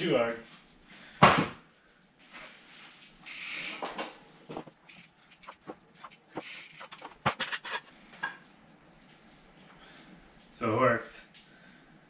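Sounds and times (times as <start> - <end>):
bike clattering in wooden stand: 3.7 - 8.4.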